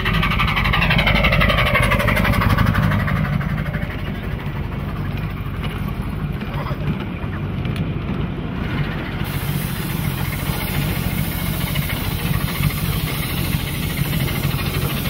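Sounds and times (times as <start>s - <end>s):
steam hiss: 0.0s - 6.2s, 9.1s - 15.0s
train cars rolling on track: 0.0s - 15.0s.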